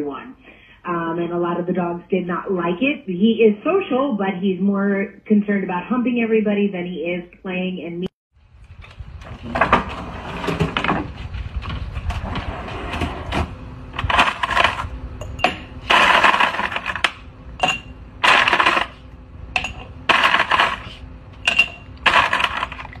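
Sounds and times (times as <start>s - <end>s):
ice clattering and crunching: 18.2s - 19.0s, 20.1s - 21.0s, 21.6s - 23.0s.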